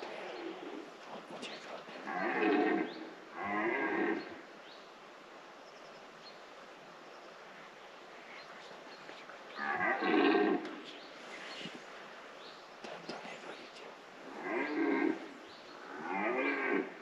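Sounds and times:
deer stag roaring: 2.1s - 4.2s, 14.3s - 16.9s.

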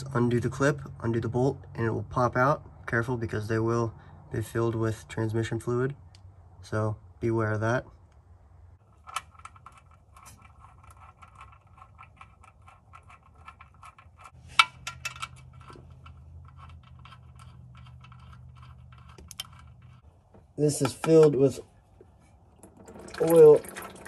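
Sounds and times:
small metallic clicks and scrapes: 8.8s - 20.2s.

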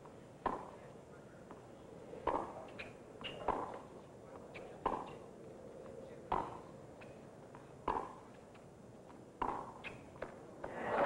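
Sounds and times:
tennis ball struck by racquets: 0.4s - 0.8s, 2.2s - 2.6s, 3.3s - 3.8s, 6.3s - 6.6s, 7.8s - 8.2s, 9.4s - 10.8s.

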